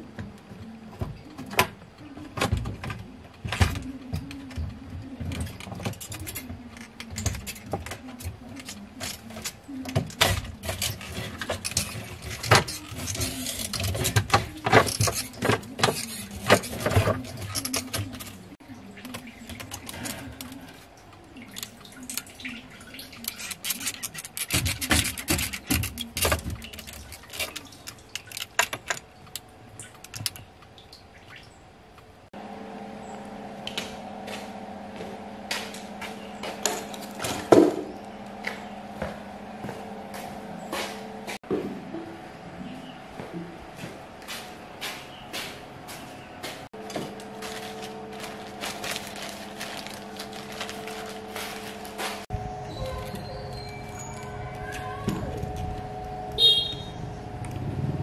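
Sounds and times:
plastic and metal clicks and scrapes: 0:05.3 - 0:18.4, 0:23.0 - 0:30.4
fuel trickling and splashing: 0:18.6 - 0:32.2.

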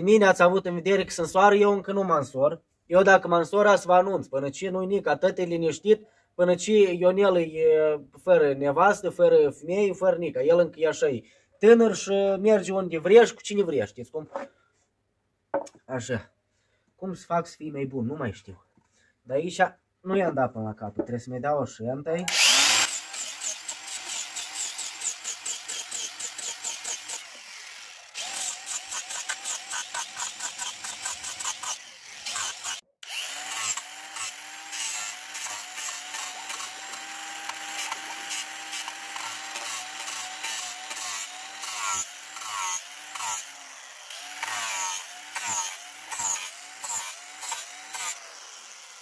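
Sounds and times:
angle grinder sanding wood: 0:22.3 - 0:49.0.

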